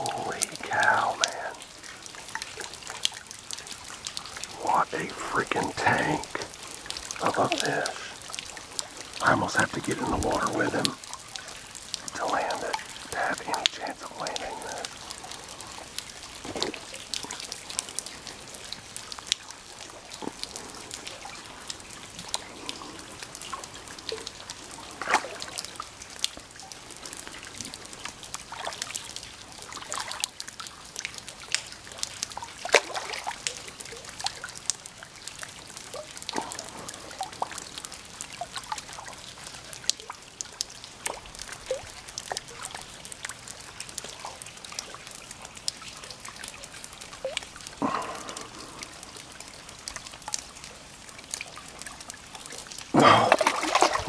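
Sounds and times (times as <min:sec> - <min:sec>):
water trickling and dripping: 0:00.0 - 0:54.0
fish splashing at water surface: 0:53.0 - 0:54.0.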